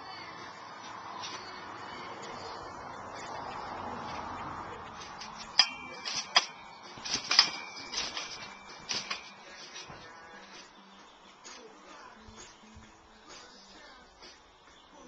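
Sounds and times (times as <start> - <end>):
trampoline springs clanking: 3.2 - 10.7.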